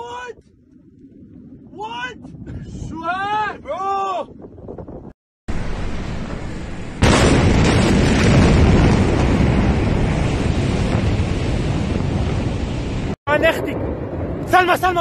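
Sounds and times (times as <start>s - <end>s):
explosion boom: 5.5s - 14.6s
long loud rumble: 5.5s - 14.9s.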